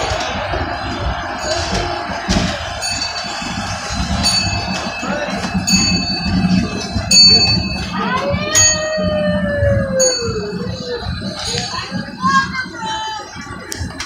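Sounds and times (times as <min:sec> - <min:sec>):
train rumbling: 0:00.0 - 0:14.0
bell ringing: 0:01.2 - 0:09.2, 0:09.9 - 0:12.5.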